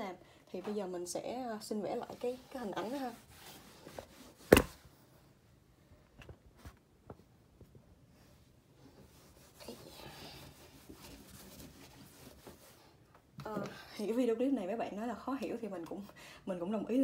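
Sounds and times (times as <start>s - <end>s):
rubbing on whiteboard: 1.9s - 4.6s, 8.9s - 13.0s.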